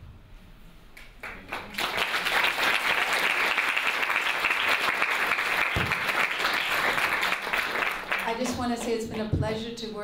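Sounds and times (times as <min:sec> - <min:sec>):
audience applauding: 0:01.2 - 0:09.0.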